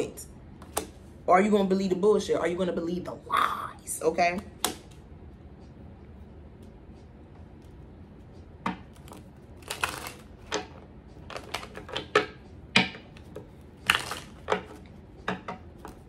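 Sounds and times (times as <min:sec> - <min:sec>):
cards shuffling: 0:08.9 - 0:12.2, 0:13.2 - 0:14.9.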